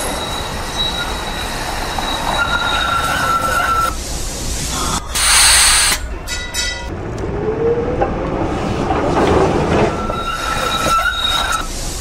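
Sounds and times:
high wheel squeal: 0.0 - 4.0, 9.8 - 11.8
tram running with rising whine: 0.0 - 12.0
air hiss: 3.9 - 6.0
tram bell ringing: 6.0 - 7.1.

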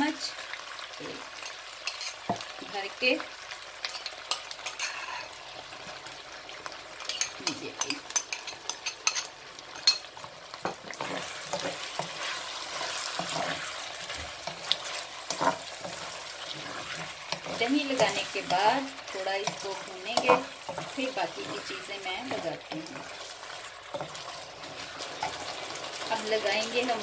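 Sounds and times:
chicken sizzling in a pan: 0.0 - 27.0
metal spoon clicking and scraping: 1.4 - 2.2, 3.8 - 5.3, 7.1 - 10.1.

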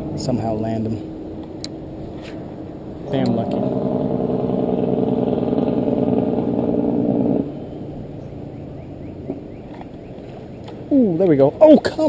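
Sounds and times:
fishing reel gear whir: 3.1 - 7.6.

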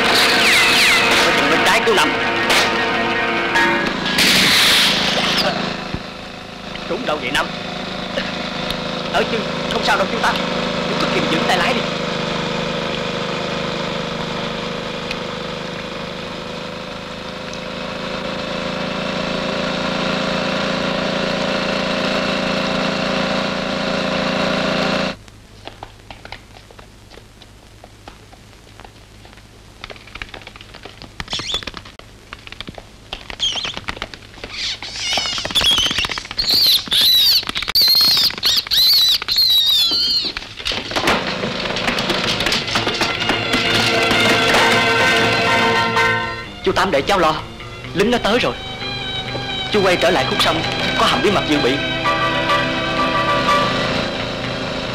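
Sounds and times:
birds chirping: 0.0 - 3.5, 31.2 - 31.8, 33.3 - 40.5, 46.4 - 52.8
motor engine running: 0.0 - 25.2, 39.6 - 54.9
scattered clicks: 25.6 - 40.8.

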